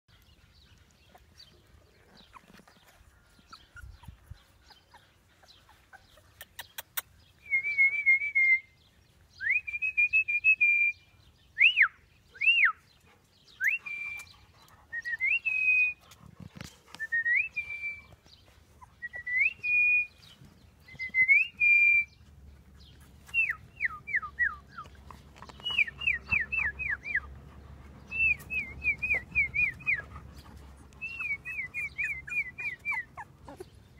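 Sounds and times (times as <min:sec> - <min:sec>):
puppies whimpering: 0:00.8 - 0:07.0, 0:13.6 - 0:19.7, 0:22.6 - 0:33.9.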